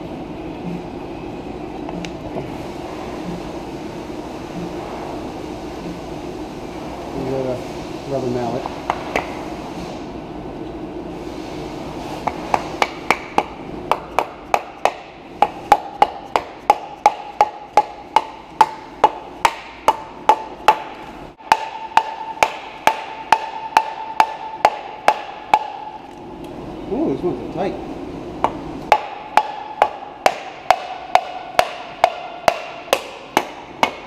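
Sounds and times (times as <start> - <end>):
rubber mallet striking metal: 12.3 - 26.0, 28.9 - 34.0.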